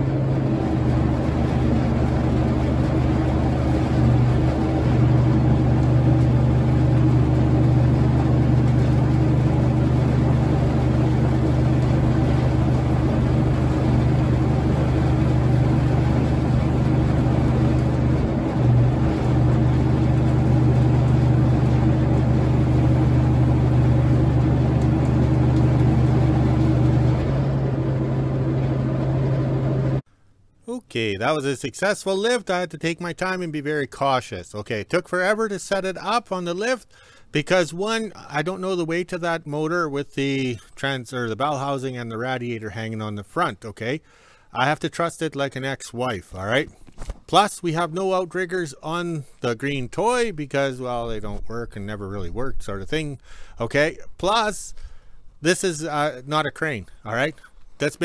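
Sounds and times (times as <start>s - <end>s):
diesel engine running: 0.0s - 30.1s.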